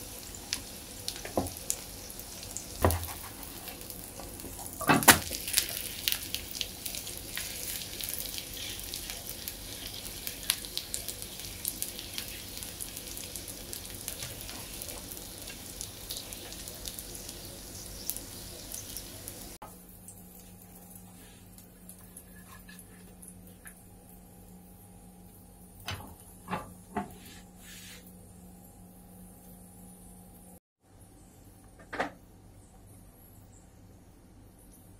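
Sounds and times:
egg sizzling in a frying pan: 0.0s - 26.5s.

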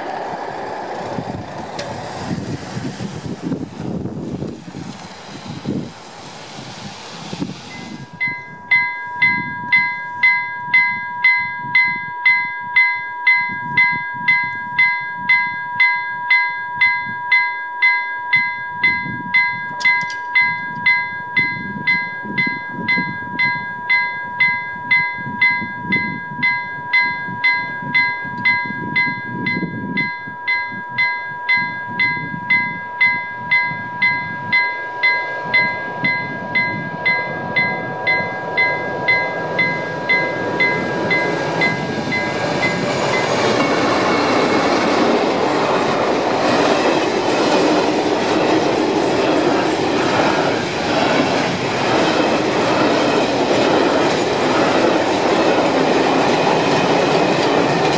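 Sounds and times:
approaching train: 0.0s - 57.9s
level crossing bell ringing: 7.9s - 45.0s
steady tone: 29.9s - 56.0s.

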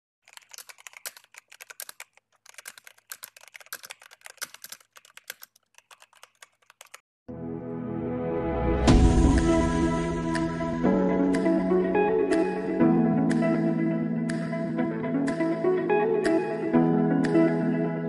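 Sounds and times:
keyboard typing: 0.2s - 7.0s
music: 7.3s - 18.0s.

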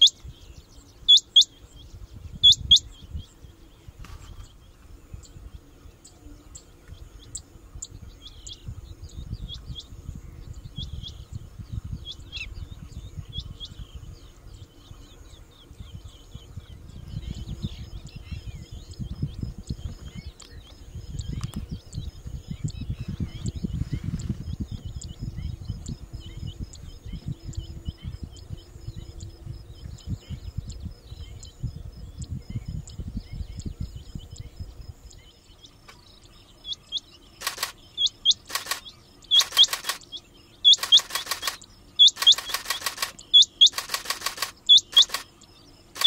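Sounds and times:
quail sharp metallic calls: 1.1s - 1.5s, 2.4s - 2.9s, 36.7s - 45.4s
faint high chirps: 36.6s - 46.0s.

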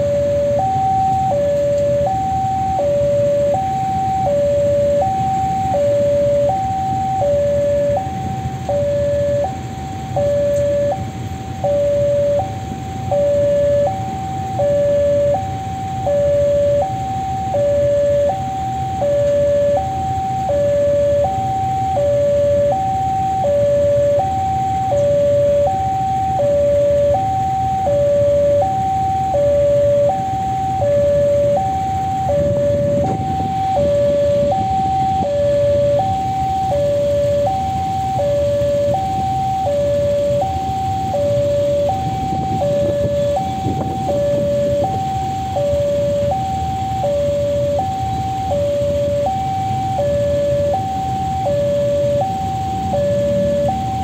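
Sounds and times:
crossing alarm two-tone chime: 0.0s - 54.0s.

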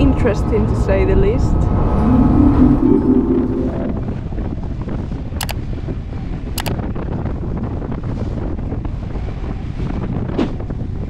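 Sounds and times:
wind buffeting microphone: 0.0s - 11.0s
boat moving through choppy water: 4.0s - 11.0s.

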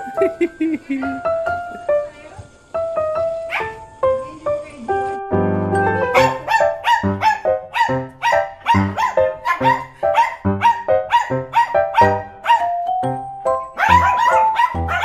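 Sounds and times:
small dogs barking: 3.4s - 3.9s, 6.1s - 12.8s, 13.8s - 15.0s
upbeat background music: 4.2s - 15.0s.

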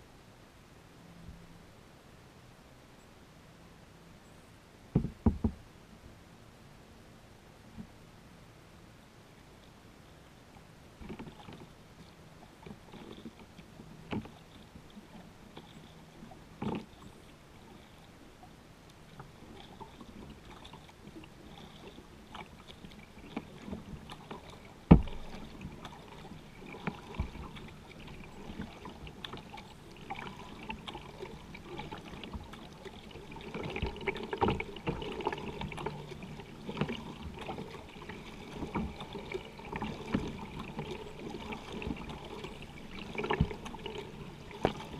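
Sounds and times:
knocks on kayak: 5.0s - 5.6s, 24.9s - 25.2s
water lapping against hull: 7.4s - 44.9s
paddle strokes: 9.4s - 44.9s.

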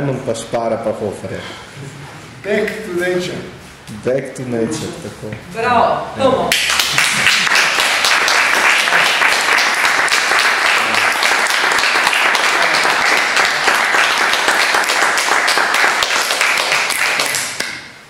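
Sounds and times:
audience applauding: 6.5s - 17.7s.

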